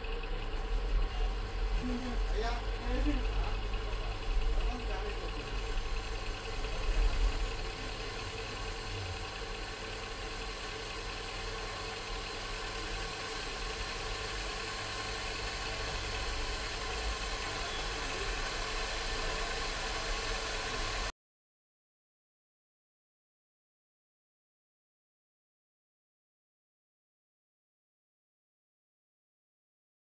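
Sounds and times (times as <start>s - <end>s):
induction cooktop whir and hum: 0.0s - 21.1s
water heating hiss: 0.0s - 21.1s.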